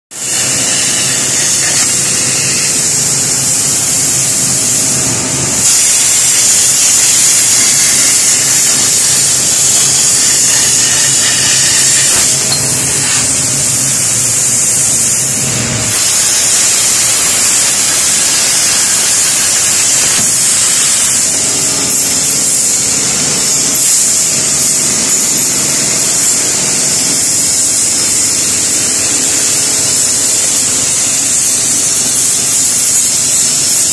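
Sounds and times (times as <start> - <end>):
plasma torch hissing: 0.1 - 33.9.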